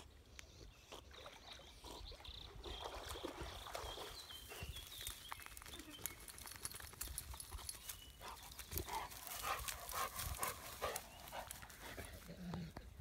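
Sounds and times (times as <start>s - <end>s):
paws crackling through dry grass: 4.3s - 13.0s.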